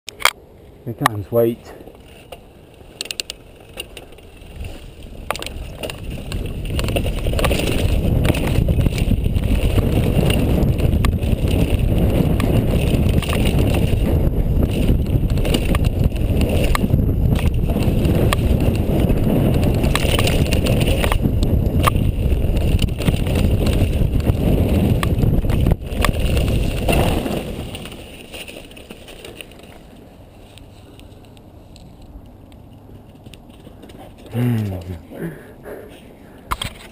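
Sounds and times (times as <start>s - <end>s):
bike tyres rumbling on dirt: 1.2s - 31.7s
bike chain and frame rattling: 1.4s - 34.7s
wind buffeting microphone: 2.7s - 28.2s.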